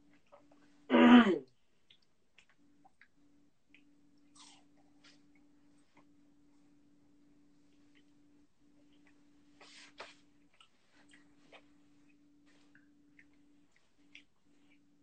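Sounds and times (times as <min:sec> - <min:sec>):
faint steady hum: 0:00.0 - 0:15.0
person chewing crunchy cookies: 0:01.8 - 0:05.4.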